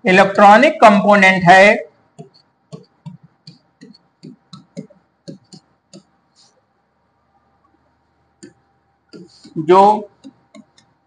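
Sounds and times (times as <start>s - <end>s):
marker pen scraping on board: 2.2s - 6.6s, 8.4s - 11.0s.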